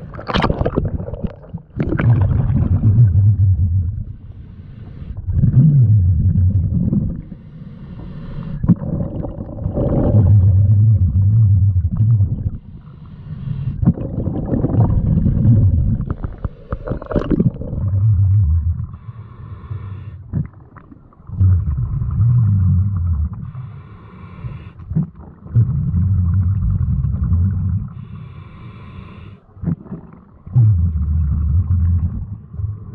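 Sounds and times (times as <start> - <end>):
exhaled bubbles gushing: 0.0 - 4.2, 5.2 - 7.3, 8.6 - 12.8, 13.7 - 19.0, 20.3 - 23.6, 24.9 - 28.0, 29.6 - 32.9
regulator inhale hiss: 4.1 - 5.2, 7.2 - 8.6, 12.6 - 13.8, 18.9 - 20.3, 23.4 - 24.9, 28.0 - 29.5.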